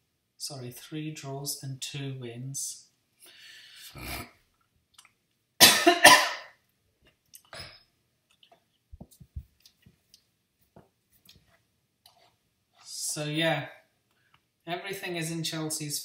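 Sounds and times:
man coughing: 0:05.6 - 0:06.6.

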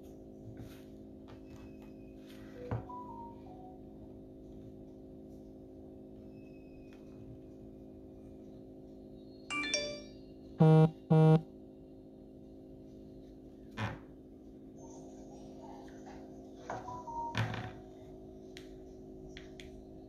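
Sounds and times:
low steady hum: 0:00.0 - 0:20.0
loud electronic beeps: 0:10.6 - 0:11.4.

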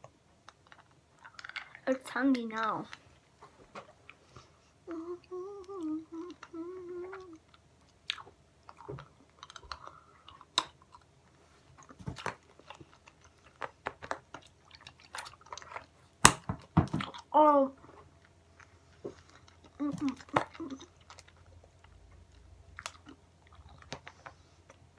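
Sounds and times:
girl humming: 0:04.8 - 0:07.4, 0:19.8 - 0:20.9.

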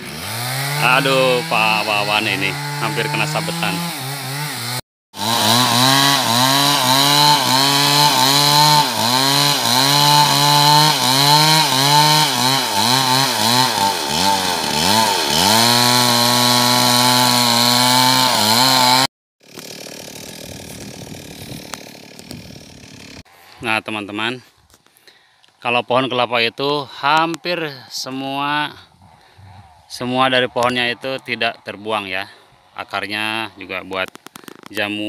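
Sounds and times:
chainsaw cutting wood: 0:00.0 - 0:23.4, 0:33.8 - 0:34.8.

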